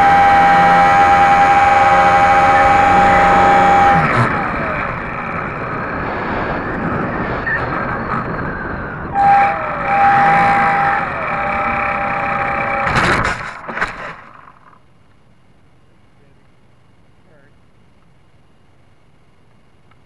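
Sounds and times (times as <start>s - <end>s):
electric motor and propeller whining: 0.0s - 14.9s
wind rush: 1.7s - 12.5s.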